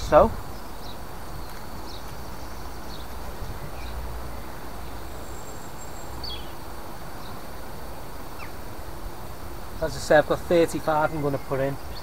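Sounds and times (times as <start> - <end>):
wind on microphone: 0.0 - 5.0
bird chirping: 0.0 - 8.7, 9.8 - 12.0.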